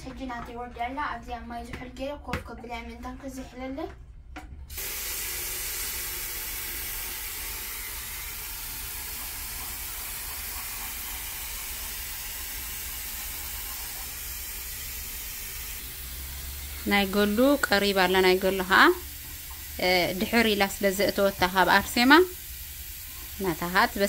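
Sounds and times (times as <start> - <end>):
food sizzling in a hot pan: 4.7 - 24.0.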